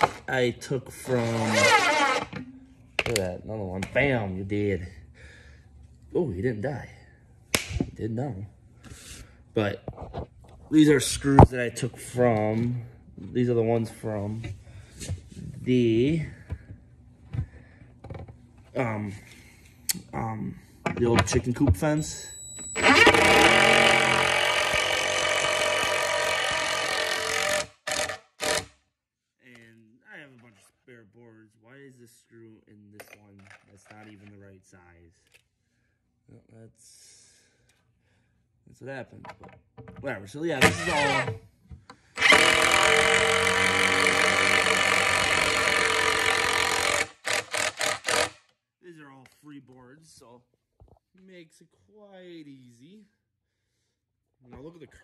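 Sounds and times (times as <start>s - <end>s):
cordless drill driving a screw: 22.8s - 28.7s, 40.6s - 41.3s, 42.2s - 48.4s.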